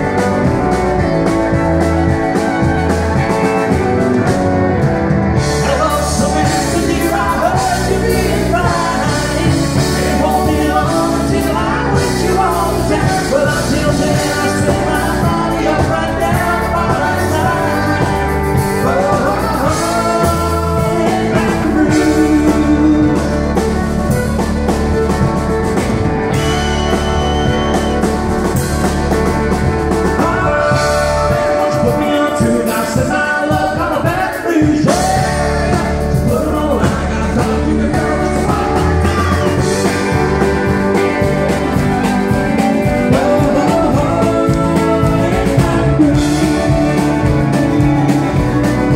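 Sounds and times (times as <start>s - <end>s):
country band playing: 0.0s - 48.9s
man singing: 5.4s - 24.4s, 29.8s - 48.9s.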